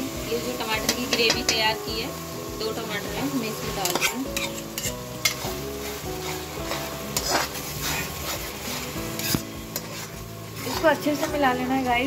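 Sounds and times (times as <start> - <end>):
frying sizzle: 0.0 - 12.0
metal spatula scraping pan: 3.7 - 11.9.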